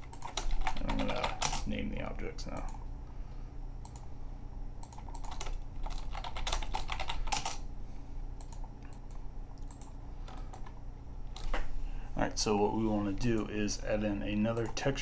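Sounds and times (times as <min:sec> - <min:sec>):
computer keyboard typing: 0:00.0 - 0:01.8, 0:04.8 - 0:07.6, 0:08.4 - 0:10.8.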